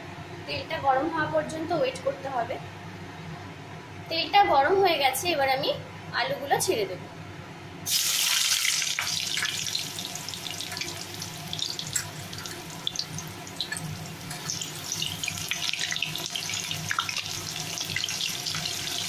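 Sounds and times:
potato slices deep-frying in oil: 0:07.9 - 0:19.0.

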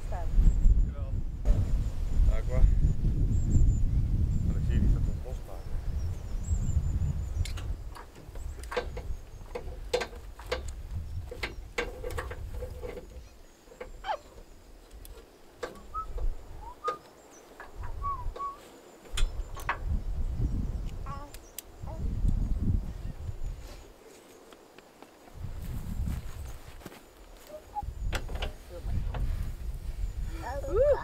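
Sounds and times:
knocks and clicks: 0:07.4 - 0:13.2
bird chirps: 0:15.6 - 0:19.7.

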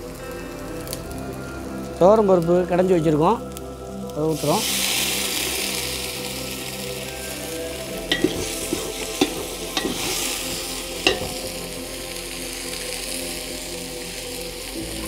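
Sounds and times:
spices sizzling in hot oil: 0:00.0 - 0:15.0
metal ladle knocking on pot: 0:08.1 - 0:10.2, 0:11.1 - 0:11.6.

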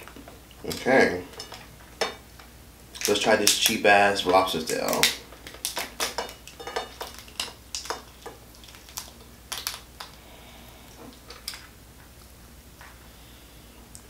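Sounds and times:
lobster shell cracking: 0:00.6 - 0:10.2.

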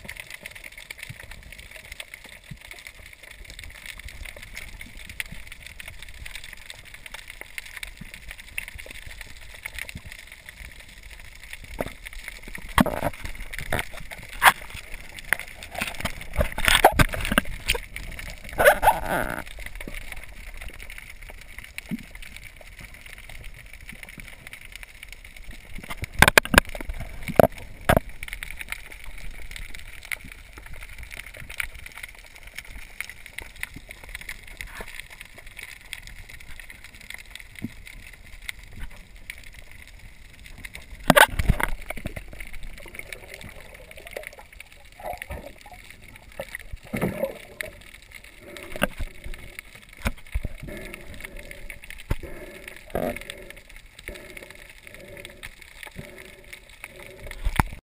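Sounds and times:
faint underwater crackling clicks: 0:00.0 - 0:57.8
rushing water bursts: 0:38.2 - 0:57.8.

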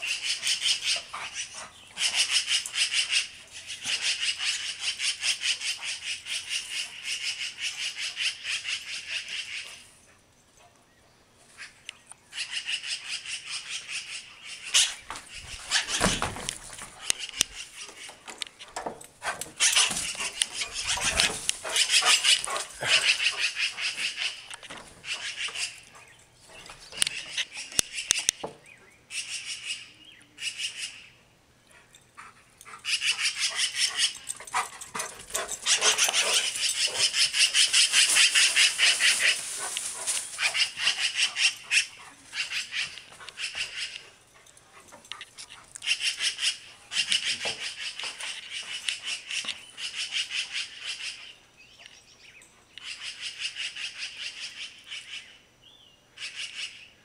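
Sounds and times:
magpies rattling chatter: 0:00.0 - 0:09.8, 0:11.6 - 0:28.5, 0:32.8 - 0:44.3, 0:45.1 - 0:51.4.

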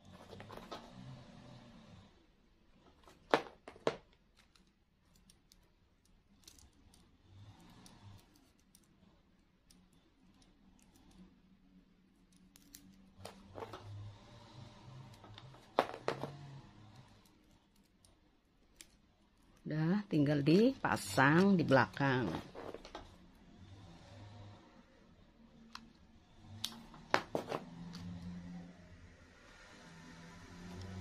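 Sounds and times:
handling crafting materials: 0:00.0 - 0:01.0, 0:02.7 - 0:23.3, 0:26.6 - 0:28.3.

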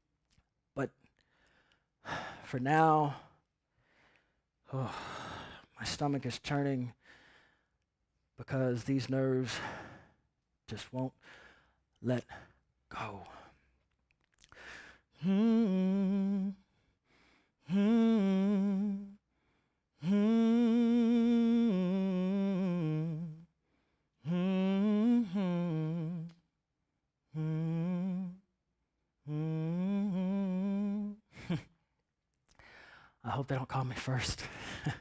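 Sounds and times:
man humming a slow tune: 0:15.2 - 0:16.7, 0:17.6 - 0:19.2, 0:20.0 - 0:23.5, 0:24.2 - 0:26.5, 0:27.3 - 0:28.5, 0:29.2 - 0:31.7.

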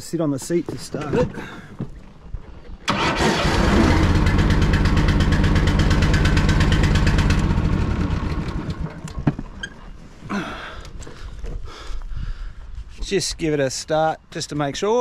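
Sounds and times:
ride-on mower engine running: 0:02.9 - 0:09.2.

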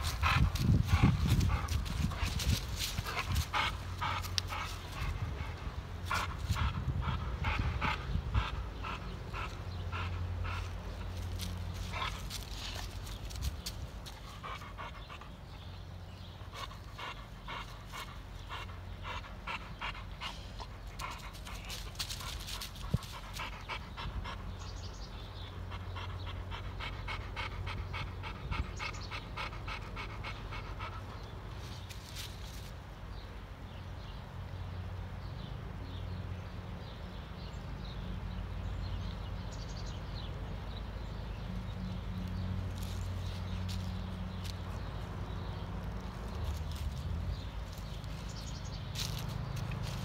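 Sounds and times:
dog panting hard: 0:00.0 - 0:15.5, 0:16.5 - 0:31.4.

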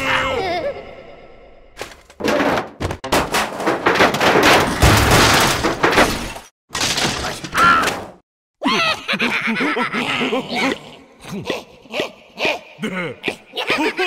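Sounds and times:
squealing cartoon voices: 0:00.0 - 0:01.0
cartoon banging and rattling: 0:01.8 - 0:08.2.

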